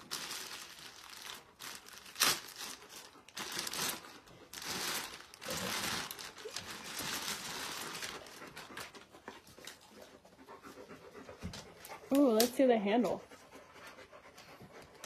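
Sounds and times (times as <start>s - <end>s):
plastic wrapping crinkling: 0.0s - 9.0s.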